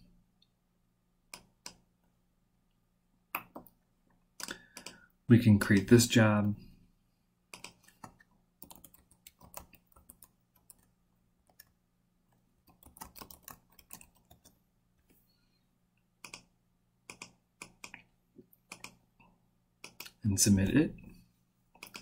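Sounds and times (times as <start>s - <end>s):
faint keyboard typing: 1.3s - 1.8s, 3.3s - 6.0s, 7.5s - 15.2s, 16.2s - 19.0s, 19.8s - 20.2s, 21.7s - 22.0s
mouse clicks: 7.5s - 9.6s, 16.2s - 16.5s.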